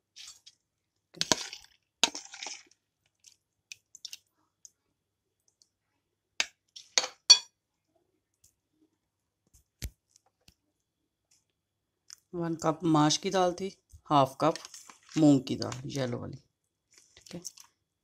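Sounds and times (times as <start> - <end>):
spoon clinking on bowls: 7.0 - 7.5.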